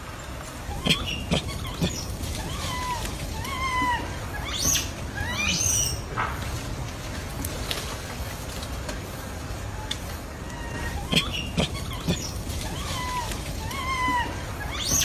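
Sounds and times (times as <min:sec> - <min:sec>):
baby monkey coo calls: 0:00.6 - 0:06.0, 0:09.8 - 0:15.0
shrill rising monkey calls: 0:00.7 - 0:06.0, 0:10.5 - 0:15.0.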